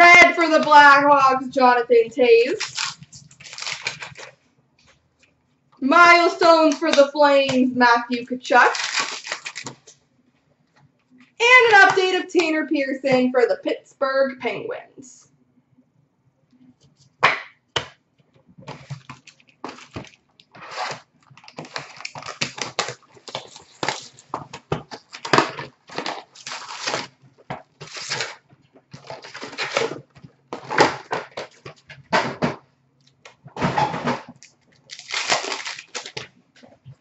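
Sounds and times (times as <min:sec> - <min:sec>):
foil packs rustling and tearing: 0:02.3 - 0:04.4, 0:08.5 - 0:09.9, 0:18.7 - 0:31.9, 0:34.4 - 0:36.7.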